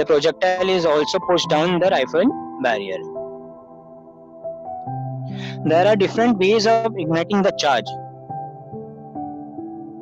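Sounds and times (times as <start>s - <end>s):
soft ambient music: 0.0s - 10.0s.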